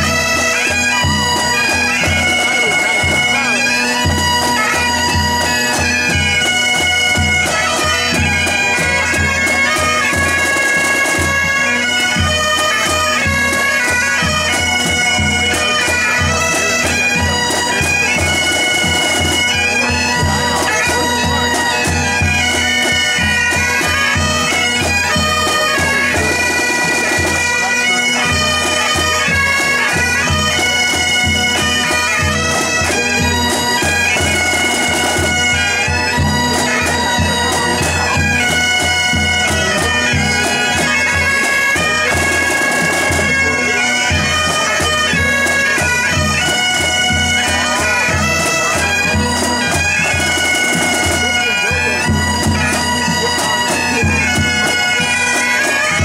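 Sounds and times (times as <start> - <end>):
bagpipes playing a tune: 0.0 - 56.0
snare drums beating: 9.1 - 11.4, 41.4 - 43.6.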